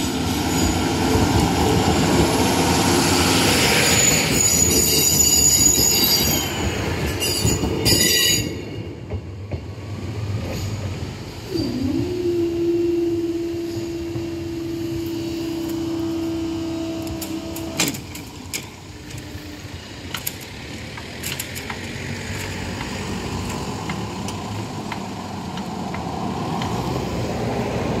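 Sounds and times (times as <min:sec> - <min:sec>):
scattered clicks: 0:20.1 - 0:26.8.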